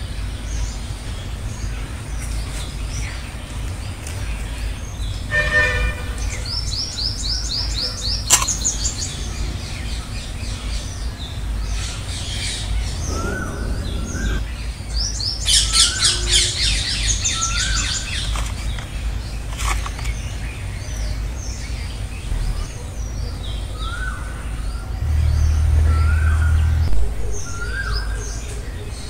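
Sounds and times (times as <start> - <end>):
birds chirping and calling: 0.0 - 29.0
low rumble: 8.8 - 15.3.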